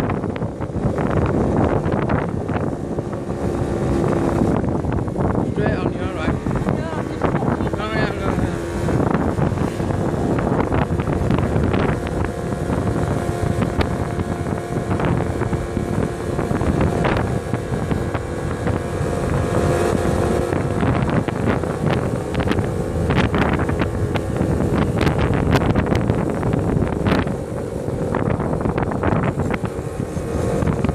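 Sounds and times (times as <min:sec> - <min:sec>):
quad bike engine running: 0:00.0 - 0:30.9
wind buffeting microphone: 0:00.0 - 0:30.9.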